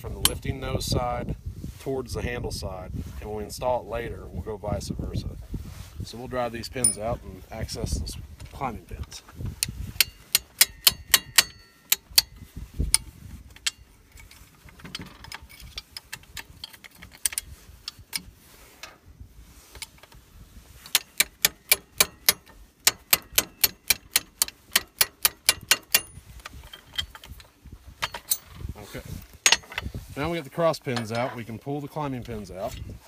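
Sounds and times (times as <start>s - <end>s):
hammer striking steel punch: 10.3s - 12.3s.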